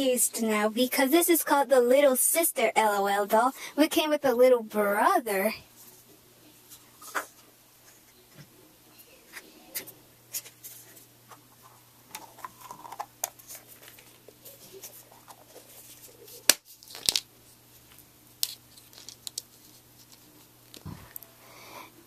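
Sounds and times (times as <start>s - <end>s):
plastic crinkling and rustling: 12.1s - 21.2s
plastic pieces clicking: 16.5s - 17.3s, 18.4s - 19.5s.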